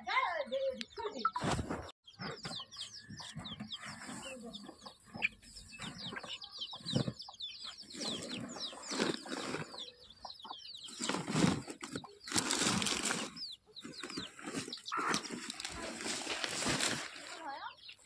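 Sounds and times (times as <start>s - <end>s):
chicks cheeping: 0.4s - 18.0s
sack and leaves rustling: 10.9s - 18.0s.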